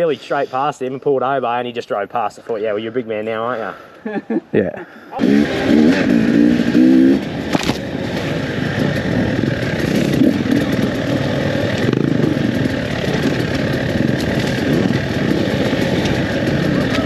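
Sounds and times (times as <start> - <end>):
dirt bike engine revving: 5.2 - 17.0.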